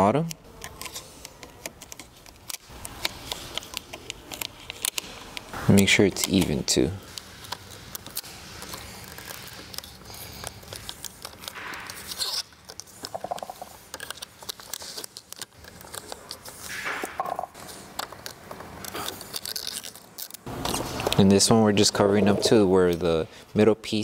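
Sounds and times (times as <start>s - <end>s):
vinyl film crinkling: 0.6s - 16.8s, 17.5s - 21.4s.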